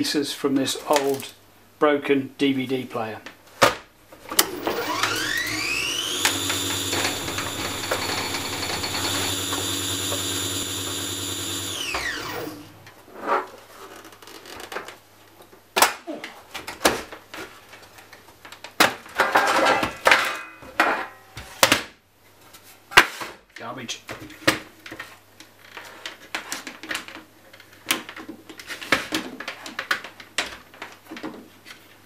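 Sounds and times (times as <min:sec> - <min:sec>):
motor-like whine: 0:04.4 - 0:12.8.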